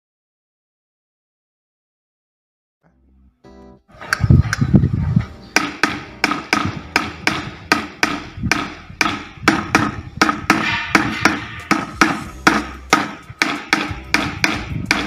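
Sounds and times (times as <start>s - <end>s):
heavy low thump: 4.2s - 15.0s
drumsticks tapping practice pad: 5.6s - 15.0s.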